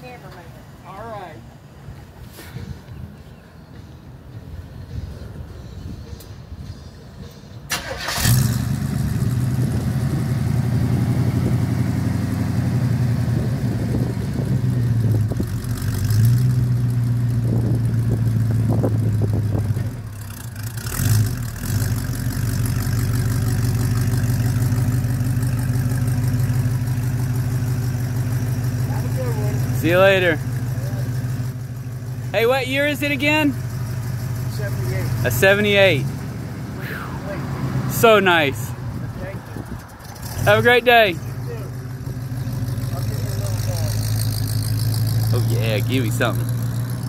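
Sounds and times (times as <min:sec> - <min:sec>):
car engine idling: 0:02.9 - 0:47.0
car engine cranking: 0:07.7 - 0:10.1, 0:13.9 - 0:36.8, 0:38.8 - 0:47.0.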